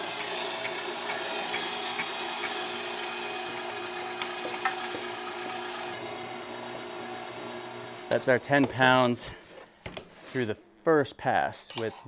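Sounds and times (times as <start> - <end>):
electric meat grinder running: 0.0 - 8.3.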